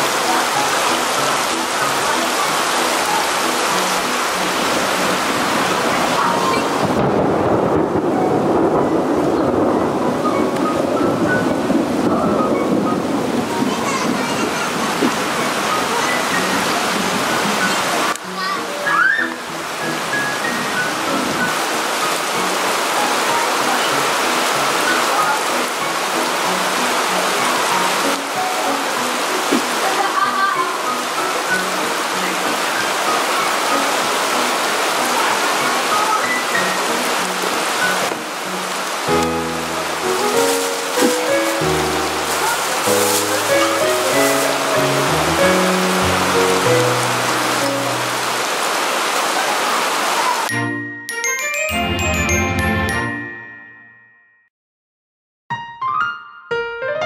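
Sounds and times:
steady rain falling: 0:00.0 - 0:50.6
low rumble of thunder: 0:06.4 - 0:15.2
background music: 0:36.2 - 0:48.4, 0:50.5 - 0:54.0.

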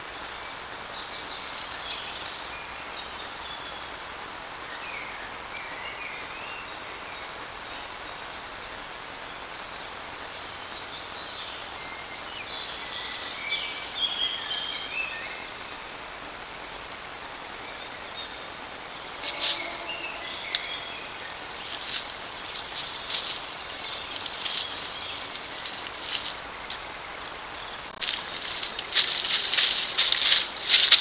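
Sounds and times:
birds singing: 0:00.0 - 0:04.0, 0:04.6 - 0:31.0
steady hiss: 0:00.0 - 0:31.0
crisp clicks and rustles: 0:19.2 - 0:19.8, 0:21.6 - 0:31.0.

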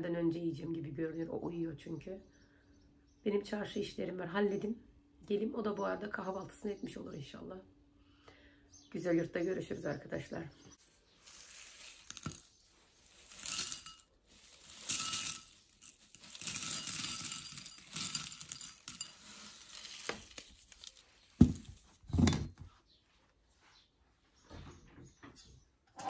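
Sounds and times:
cereal rattling into glass bowl: 0:11.2 - 0:22.0.

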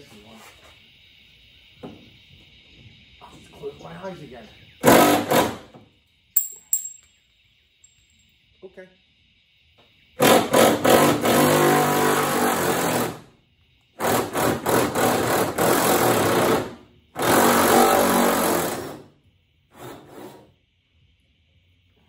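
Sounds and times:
impact wrench hammering: 0:06.4 - 0:07.0.

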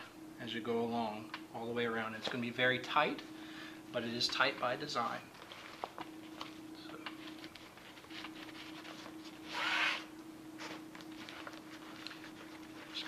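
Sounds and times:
faint steady hum: 0:00.0 - 0:13.0
bungee cord scraping: 0:09.4 - 0:10.1.

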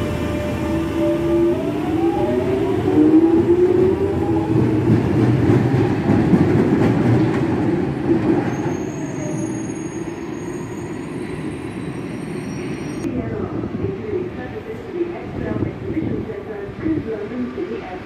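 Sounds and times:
wheels rumbling on rail: 0:00.0 - 0:09.8.

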